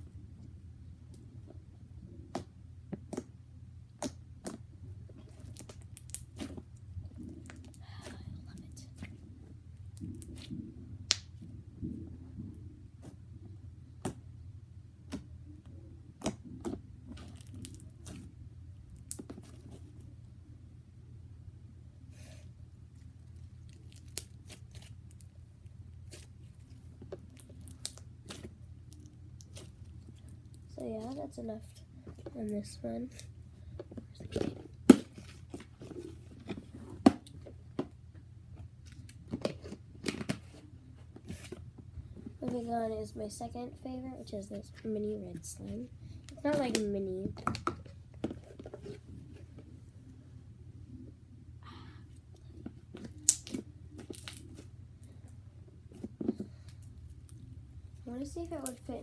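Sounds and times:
slime crackling: 23.0s - 31.6s, 53.0s - 54.7s, 58.1s - 59.0s
slime squished by hand: 52.8s - 54.7s.

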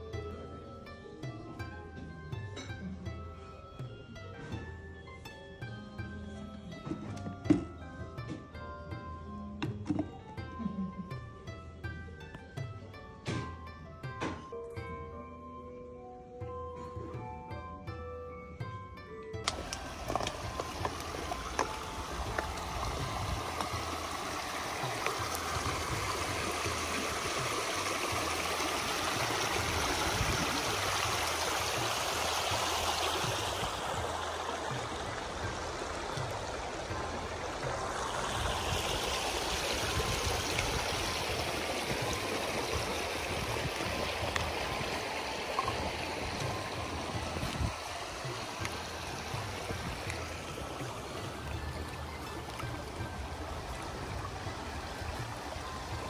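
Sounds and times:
river rushing over rocks: 19.5s - 56.0s.

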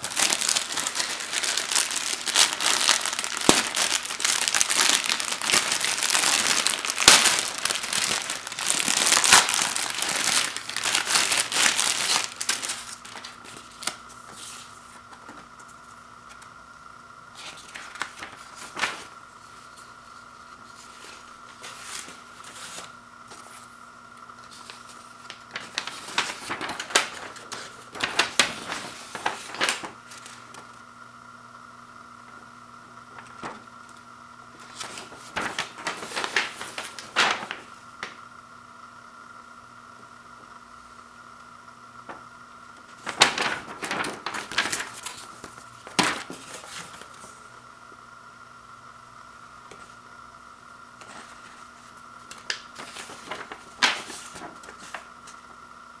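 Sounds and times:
plastic bag crinkling and tearing: 0.0s - 14.0s, 24.5s - 30.6s, 34.6s - 38.1s, 42.9s - 47.1s, 52.3s - 55.1s
paper leaflet rustling: 0.0s - 16.5s, 17.4s - 19.9s, 20.6s - 23.7s, 24.4s - 30.7s, 33.2s - 33.6s, 34.5s - 38.2s, 42.9s - 47.3s, 51.0s - 55.4s.

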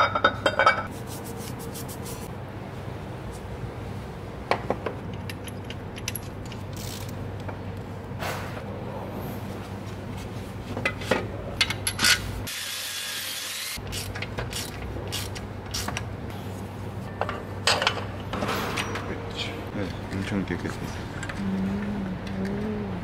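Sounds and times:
steady low hum: 13.8s - 23.0s.

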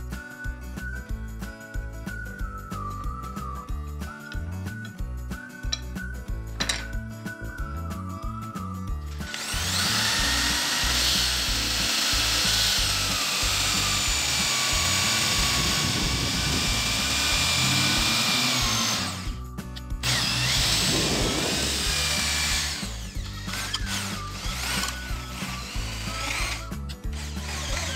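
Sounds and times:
electric drill motor whine: 9.1s - 19.4s, 20.0s - 27.9s
blade shaving wood: 9.2s - 27.9s.

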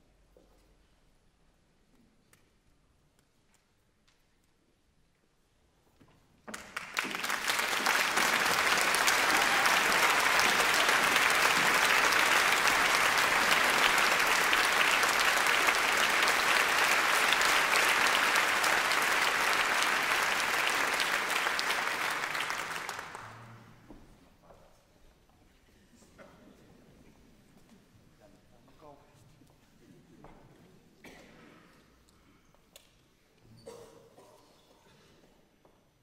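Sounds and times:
audience applauding: 6.5s - 23.8s.

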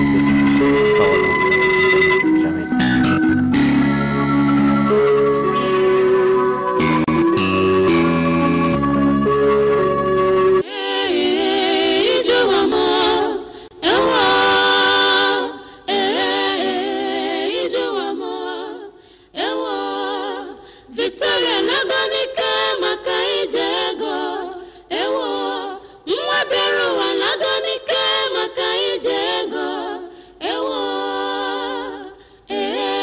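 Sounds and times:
unaccompanied singing with vibrato: 10.6s - 33.0s.

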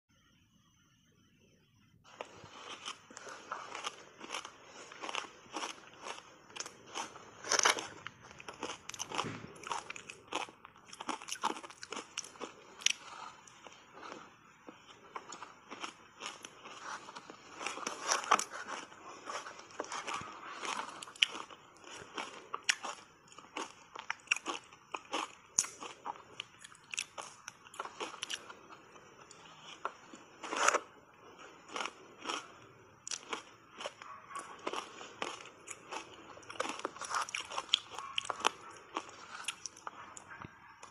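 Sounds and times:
shaved ice crunching: 2.1s - 14.3s
crunching shaved ice: 2.1s - 40.9s.

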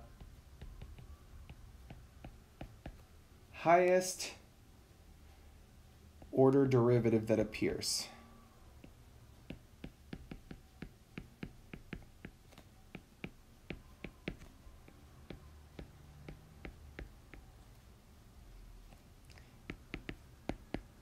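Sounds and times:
stylus tapping on tablet screen: 0.0s - 3.1s, 8.8s - 17.6s, 19.4s - 21.0s.

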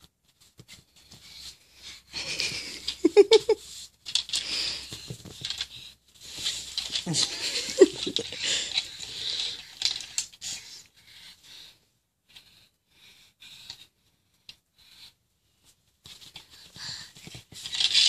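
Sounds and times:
man's breathy laughter: 2.1s - 3.7s, 7.1s - 8.9s.

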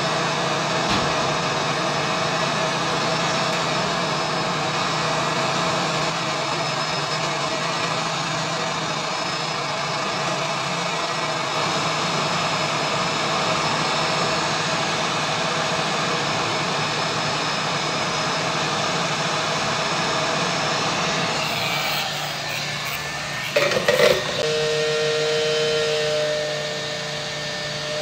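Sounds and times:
hot air gun blowing: 20.0s - 28.0s.

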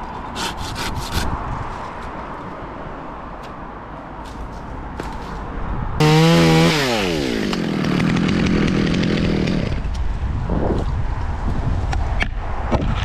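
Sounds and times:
chainsaw engine revving: 6.0s - 9.9s.

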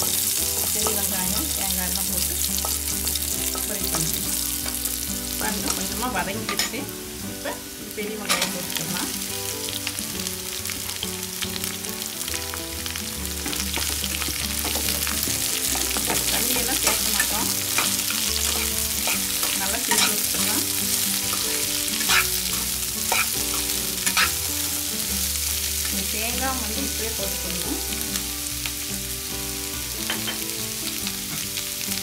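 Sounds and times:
onions sizzling in oil: 0.0s - 32.0s
spoon scraping pan: 15.7s - 24.5s.

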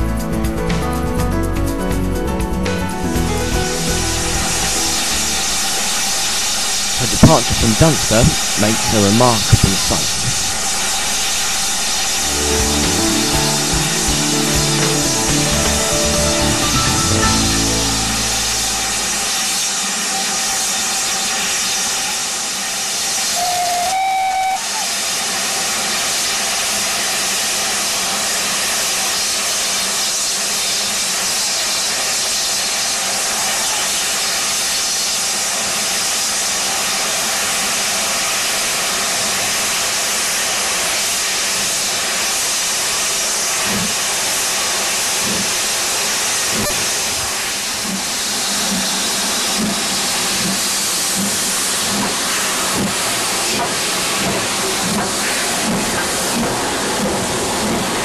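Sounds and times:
steam locomotive hissing: 3.0s - 58.0s
locomotive whistle blast: 23.2s - 25.1s.

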